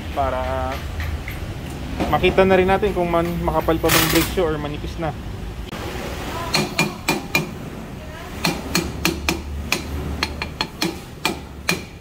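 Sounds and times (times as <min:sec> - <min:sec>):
hammer striking brake drum: 0:06.5 - 0:07.6, 0:08.4 - 0:12.0.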